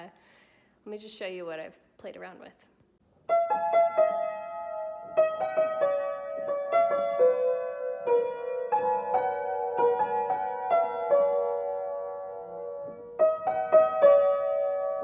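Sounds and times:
upright piano playing slowly: 3.2 - 15.0.

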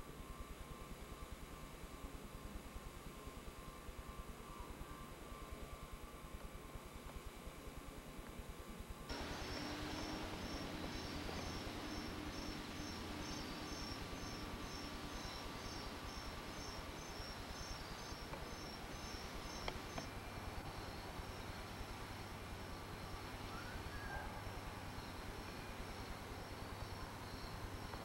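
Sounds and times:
background hiss: 0.0 - 28.0
crickets chirping: 9.1 - 28.0.

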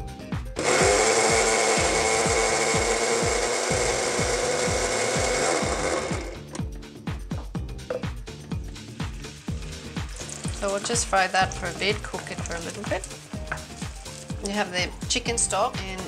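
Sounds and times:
electric blender running: 0.6 - 6.5.

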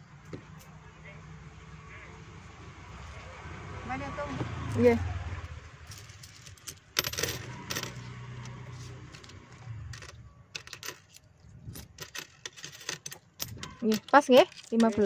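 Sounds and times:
coins clinking on glass counter: 5.9 - 15.0.

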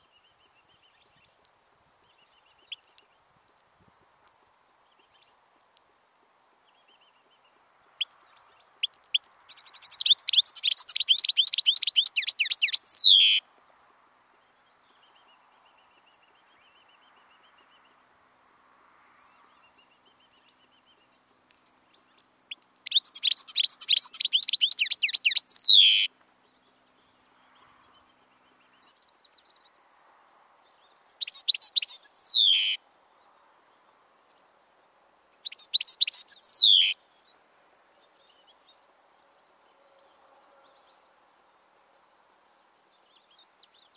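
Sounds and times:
goldfinch twittering song: 8.0 - 13.4, 22.0 - 26.8, 30.8 - 32.8, 35.3 - 37.4.

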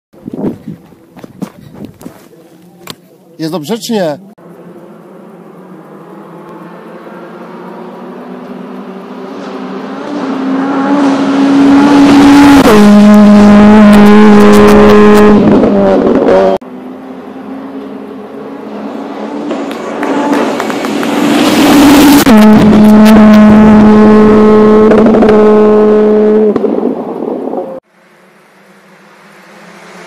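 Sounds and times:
rally car engine passing: 4.4 - 30.0
exhaust pops and crackles: 19.5 - 21.3, 26.4 - 27.2.

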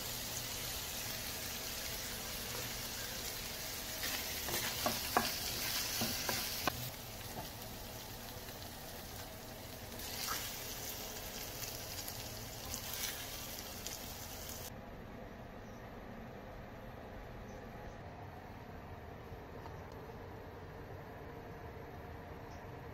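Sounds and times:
meat sizzling in a pan: 0.0 - 14.7.

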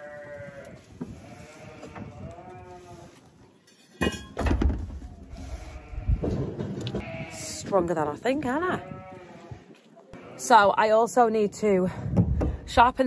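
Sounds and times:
sheep bleating: 0.0 - 3.0.

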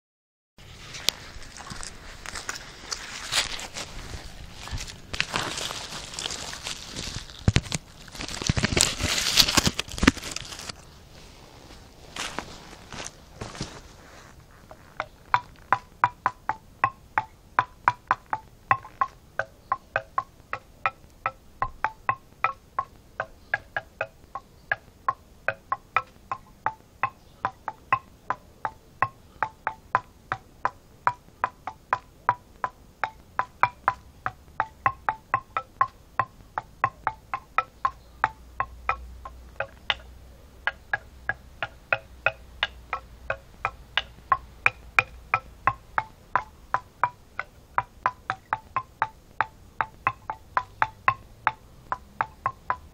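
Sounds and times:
wooden stick knocking: 1.6 - 10.8, 14.6 - 52.9.

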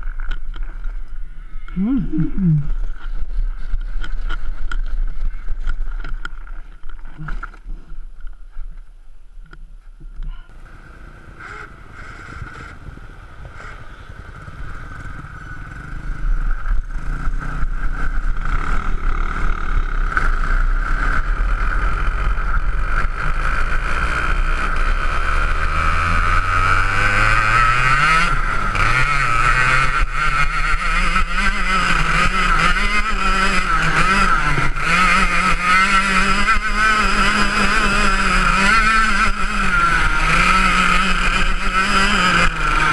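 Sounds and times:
kart engine revving: 10.6 - 42.9.

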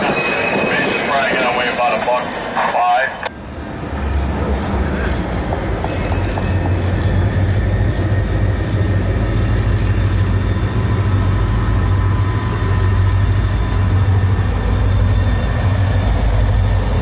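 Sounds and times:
diesel locomotive engines droning: 0.0 - 17.0
rail cars rolling past: 0.0 - 17.0.

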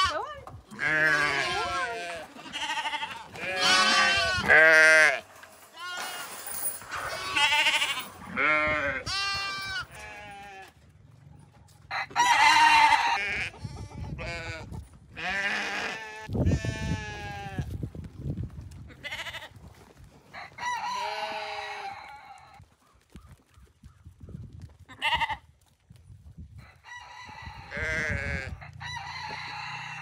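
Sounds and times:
sheep and lambs bleating: 0.0 - 6.3, 6.9 - 10.8, 11.9 - 17.8, 18.9 - 19.6, 20.7 - 22.6, 24.9 - 25.5, 27.6 - 28.8.

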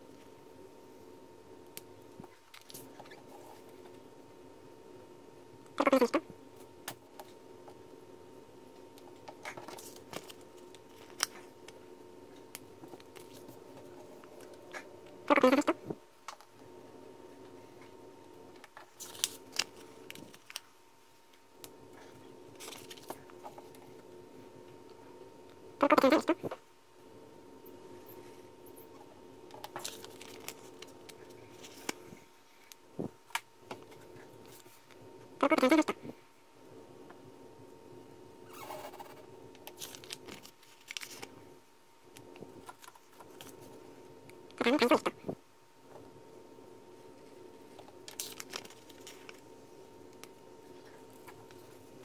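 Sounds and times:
faint steady hum: 0.0 - 52.0
plastic film crackling: 18.8 - 20.7, 29.6 - 32.0, 39.6 - 41.3, 48.0 - 49.5.

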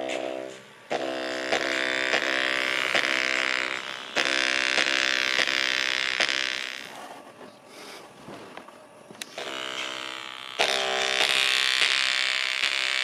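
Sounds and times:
distorted music from small speaker: 0.0 - 7.0, 9.2 - 13.0.

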